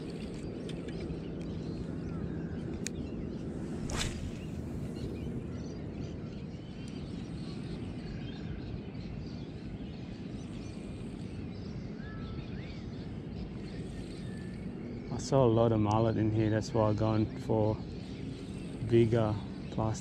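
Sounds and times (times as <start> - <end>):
steady low rumble: 0.0 - 9.4
birds chirping and calling: 0.0 - 20.0.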